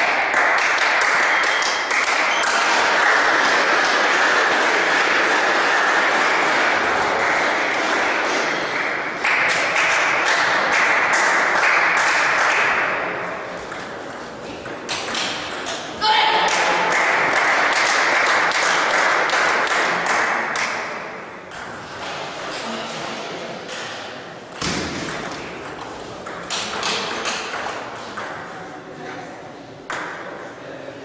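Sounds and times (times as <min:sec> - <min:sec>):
table tennis balls clicking: 0:12.0 - 0:16.0, 0:24.5 - 0:28.7.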